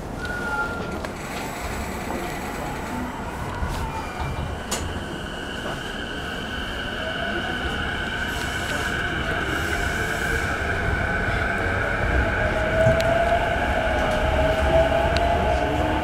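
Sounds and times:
wheels rumbling on rail: 0.0s - 16.0s
train motor whine: 0.2s - 5.9s.

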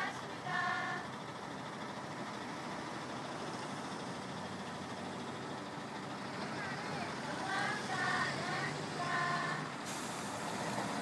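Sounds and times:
bus engine idling: 0.0s - 11.0s.

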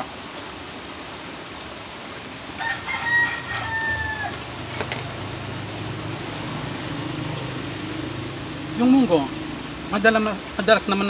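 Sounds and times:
rooster crowing: 2.5s - 4.8s.

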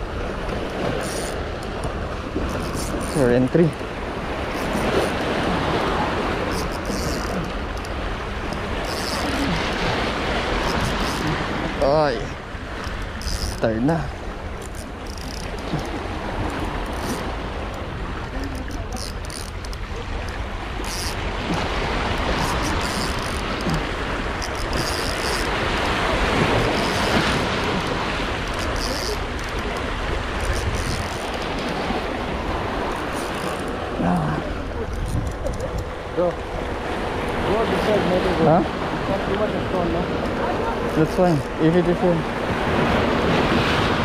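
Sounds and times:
sea wash: 0.0s - 44.0s
wind on microphone: 12.8s - 44.0s.

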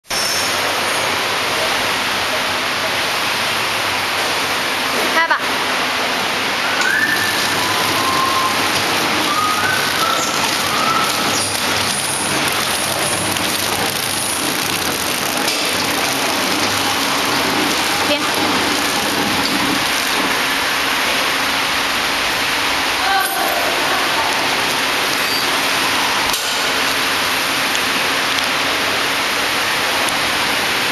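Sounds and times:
wrapping machine hiss and rattle: 6.5s - 30.9s.

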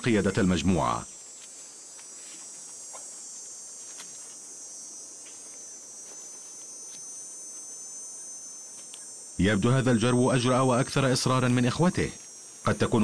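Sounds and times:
faint ticks and rustles: 0.0s - 9.4s, 10.8s - 13.0s
insects chorus: 0.0s - 13.0s.

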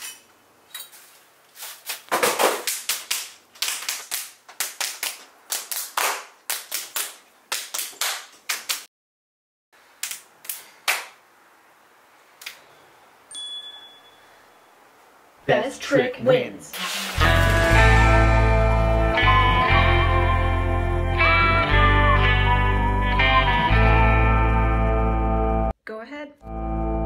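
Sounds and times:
hand slaps and claps: 1.9s - 8.9s, 10.0s - 11.2s.

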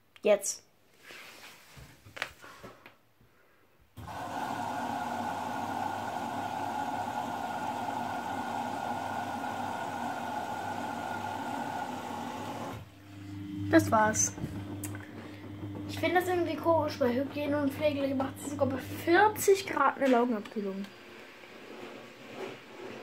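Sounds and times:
water rushing into washing machine: 4.0s - 12.9s, 13.7s - 19.6s.

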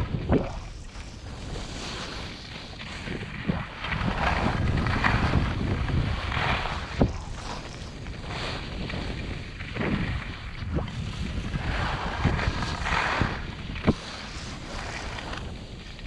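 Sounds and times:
skis swishing across snow: 0.0s - 16.0s
wind rushing over microphone: 0.0s - 16.0s.

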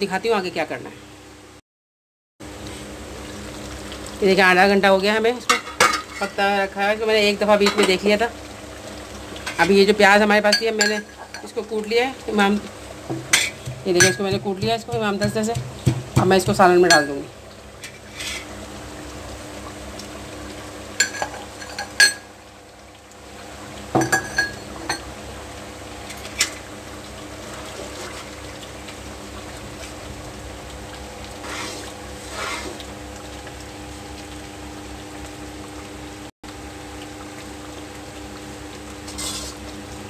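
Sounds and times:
steady hum: 11.9s - 20.6s.

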